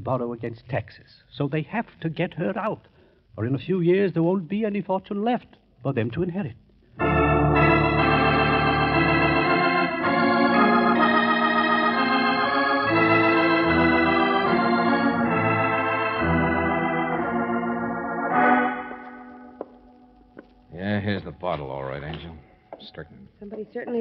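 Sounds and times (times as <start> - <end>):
organ playing held chords: 7.0 - 22.8.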